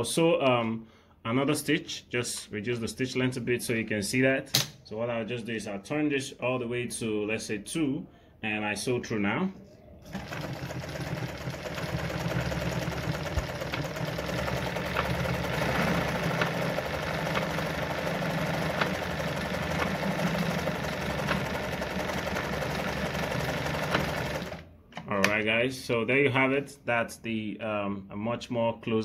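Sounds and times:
sewing machine stitching: 0:09.9 - 0:24.7.

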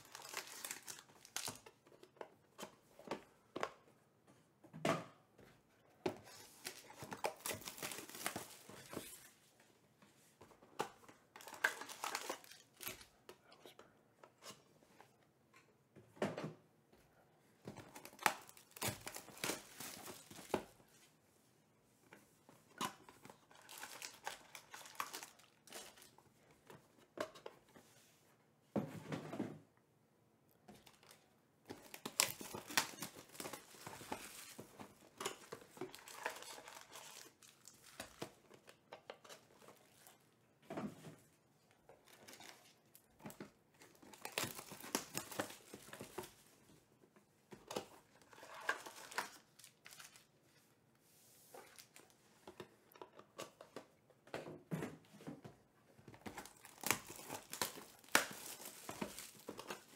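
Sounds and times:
foil packs crinkling: 0:00.0 - 0:01.6, 0:56.4 - 0:59.9.

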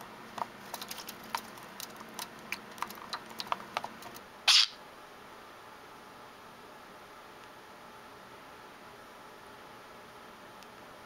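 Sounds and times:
small irregular clicks and taps: 0:00.4 - 0:04.2.

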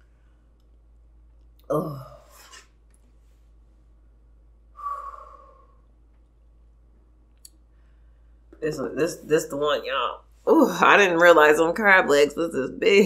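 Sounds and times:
person sighing: 0:01.7 - 0:02.6, 0:04.8 - 0:05.8.

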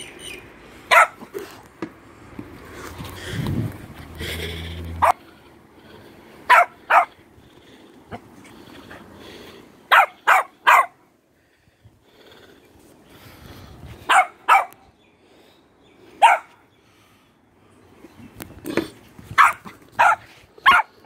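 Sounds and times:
small dog yapping: 0:00.9 - 0:01.3, 0:06.5 - 0:07.1, 0:09.9 - 0:10.9, 0:14.1 - 0:14.8, 0:19.4 - 0:20.9.

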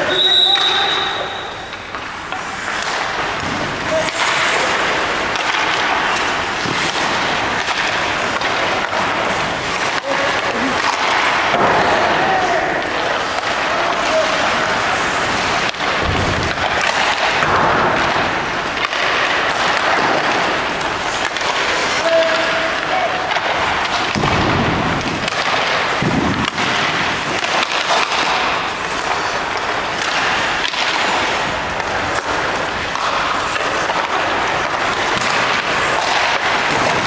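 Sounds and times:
crowd voices: 0:00.0 - 0:37.0
sharp knocks of pucks and sticks: 0:00.0 - 0:37.0
skate noise: 0:00.0 - 0:37.0.

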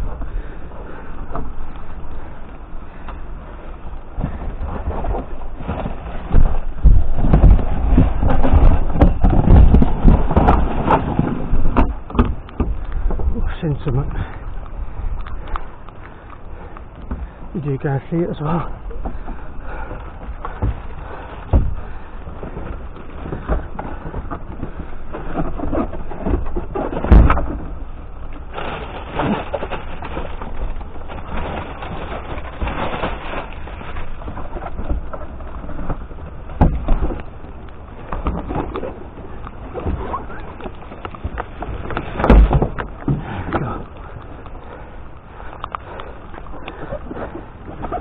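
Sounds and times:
rustling and scraping cardboard: 0:04.2 - 0:13.3, 0:20.2 - 0:27.8, 0:28.4 - 0:37.4, 0:38.1 - 0:44.8
loud thumps: 0:42.0 - 0:43.8.

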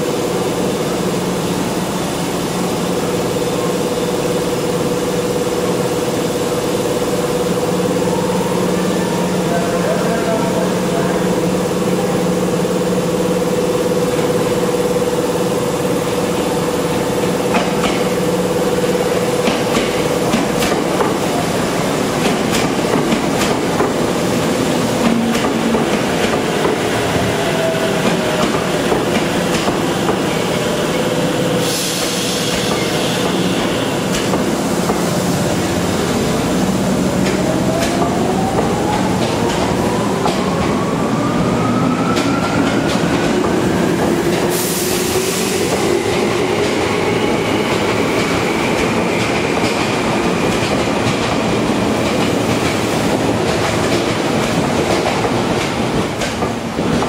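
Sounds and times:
train wheels clicking over rail joints: 0:17.2 - 0:18.1, 0:19.4 - 0:21.2, 0:22.1 - 0:24.0, 0:28.0 - 0:30.4, 0:32.0 - 0:35.8, 0:47.7 - 0:57.0.

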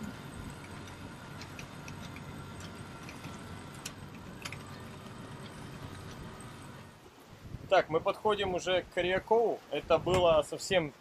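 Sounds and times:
winch and rigging clicks: 0:00.0 - 0:07.1
faint thin whine: 0:00.0 - 0:07.7
steady low hum: 0:00.0 - 0:07.7.

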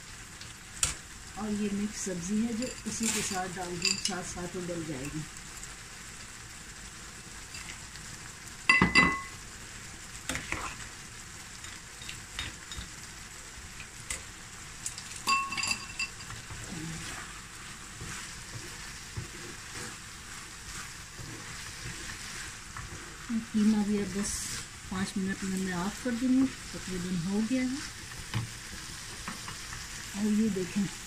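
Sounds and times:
meat sizzling in a pan: 0:00.0 - 0:31.0
metal striking a pot: 0:08.7 - 0:09.3, 0:15.2 - 0:16.3
wooden spatula scraping and knocking: 0:10.3 - 0:10.8, 0:15.7 - 0:24.6.

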